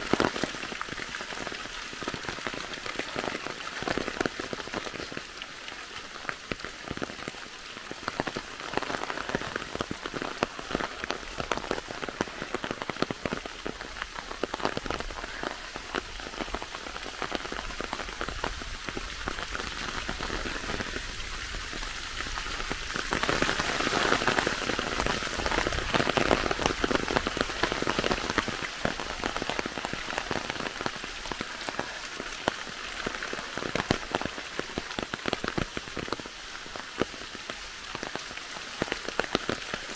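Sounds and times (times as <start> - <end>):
rain pattering in forest: 0.0 - 39.9.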